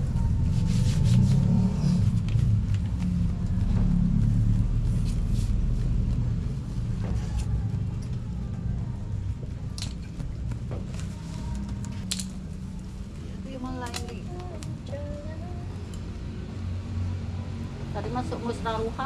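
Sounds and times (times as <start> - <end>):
hand fan air buffeting microphone: 0.0 - 12.0.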